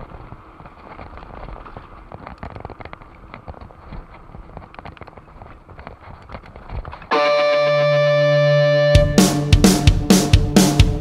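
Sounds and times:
bike clicking and clattering: 0.0s - 7.1s
tyre and wind rumble: 0.0s - 7.2s.

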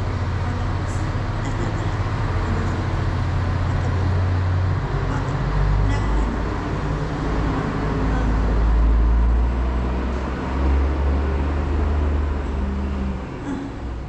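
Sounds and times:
broad noise: 0.0s - 14.0s
steady low rumble: 0.0s - 14.0s.

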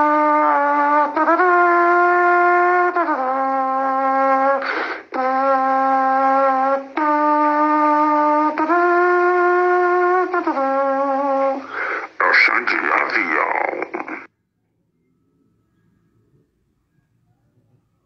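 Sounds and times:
saxophone long held notes: 0.0s - 11.8s
short breathy rush: 4.6s - 5.1s, 11.6s - 12.2s.

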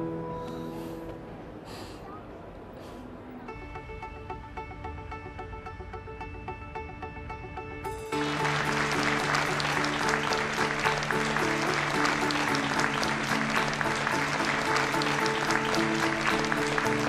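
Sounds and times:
background music with held notes: 0.0s - 1.4s, 3.5s - 17.0s
audience applauding: 8.1s - 17.0s.

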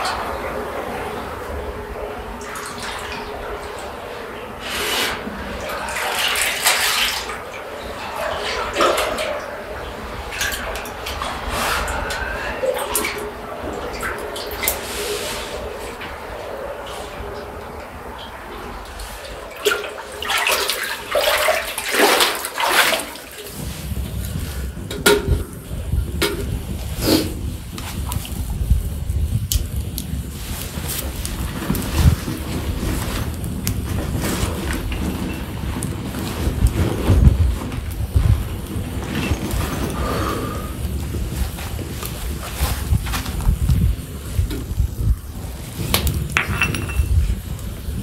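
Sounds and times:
water splashing around wading legs: 5.6s - 14.9s, 19.2s - 23.7s.

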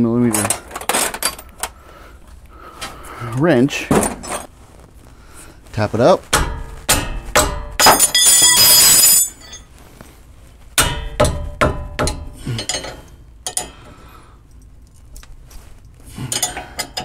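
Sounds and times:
metal tools knocking and clinking: 0.3s - 1.6s, 6.4s - 9.7s, 10.8s - 13.9s, 16.3s - 17.0s.

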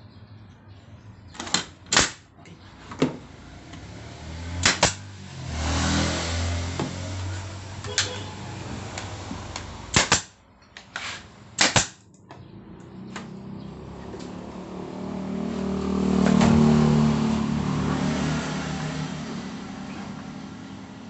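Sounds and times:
nail gun shots: 1.4s - 2.3s, 4.6s - 5.0s, 9.9s - 10.4s, 11.6s - 12.1s.

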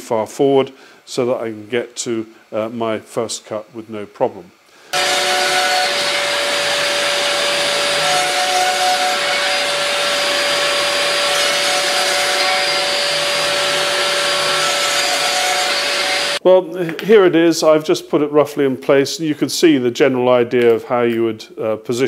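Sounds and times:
router whining: 4.9s - 16.4s.

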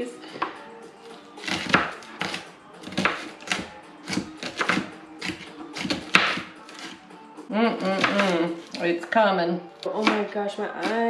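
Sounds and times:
knives chopping on a cutting board: 1.4s - 7.0s, 7.9s - 8.8s, 10.0s - 11.0s.

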